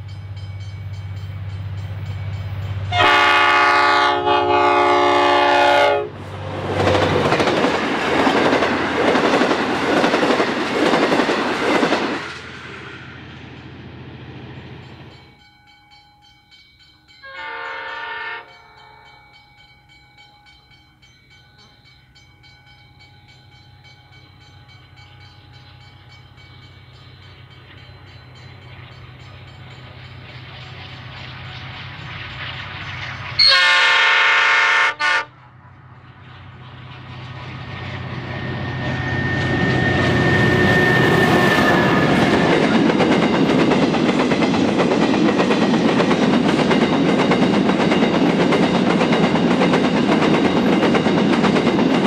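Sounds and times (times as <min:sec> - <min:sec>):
train engine hum: 0:00.0 - 0:52.0
train rumble and wheel clatter: 0:00.0 - 0:52.0
locomotive horn blast: 0:02.9 - 0:06.3, 0:17.2 - 0:19.1, 0:33.4 - 0:35.4
distant train horn: 0:02.9 - 0:07.0, 0:17.2 - 0:19.2, 0:33.4 - 0:35.5, 0:38.3 - 0:42.6.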